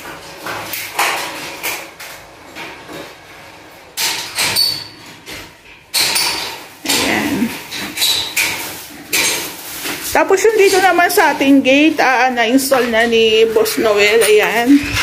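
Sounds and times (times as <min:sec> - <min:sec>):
metal framing knocks and clanks: 0:04.0 - 0:10.1.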